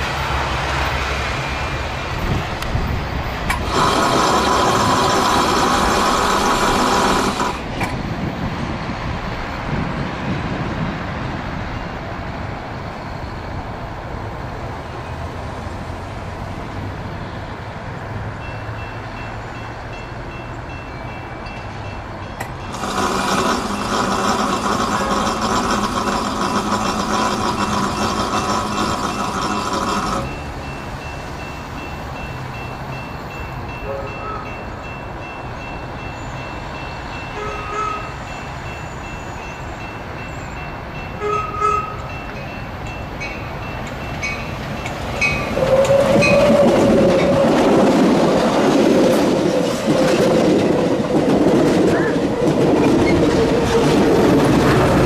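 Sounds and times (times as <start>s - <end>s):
passing train rumble: 0.0s - 55.0s
locomotive horn blasts: 22.7s - 26.2s, 33.8s - 34.7s, 37.4s - 38.2s, 41.2s - 42.2s, 45.2s - 47.5s.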